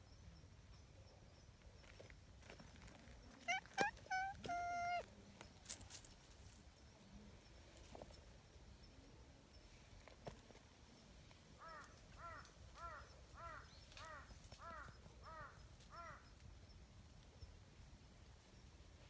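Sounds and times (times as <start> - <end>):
faint crow cawing: 11.6 - 16.3.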